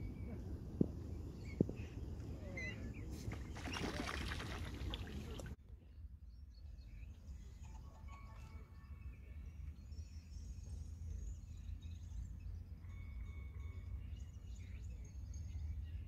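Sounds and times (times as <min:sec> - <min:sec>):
wind rumble on microphone: 0:00.0 - 0:05.6
waterbird chicks peeping: 0:01.4 - 0:05.6
water splashing: 0:03.2 - 0:05.6.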